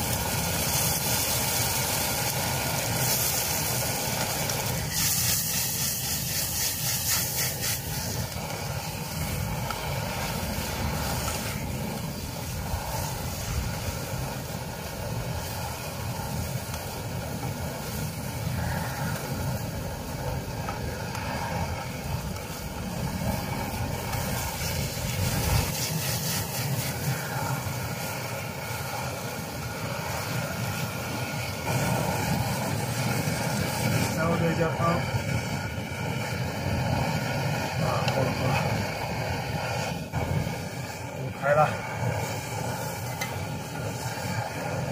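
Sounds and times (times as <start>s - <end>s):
tomatoes frying in a wok: 0.0s - 44.9s
water poured into hot pan: 0.0s - 44.9s
spatula scraping a wok: 3.0s - 8.4s, 24.1s - 27.3s.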